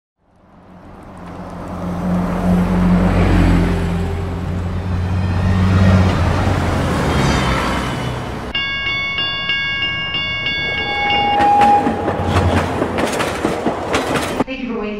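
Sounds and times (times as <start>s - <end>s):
bus engine passing: 0.2s - 8.5s, 10.4s - 14.4s
level-crossing warning bell: 8.5s - 12.6s.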